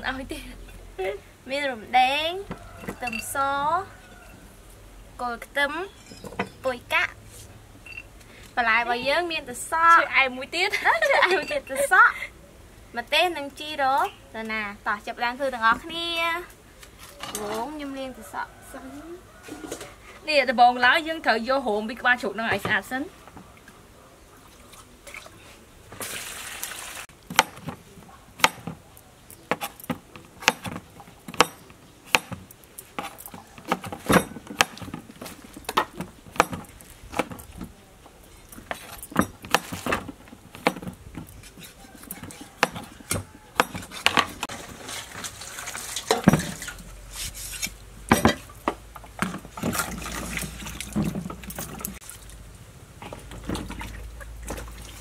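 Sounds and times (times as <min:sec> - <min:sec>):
cleaver chopping on wooden block: 0:27.3 - 0:27.8, 0:28.4 - 0:28.8, 0:29.5 - 0:37.7, 0:38.7 - 0:40.9, 0:41.6 - 0:44.4
water sloshing in plastic bowl: 0:42.2 - 0:47.0, 0:48.1 - 0:55.0.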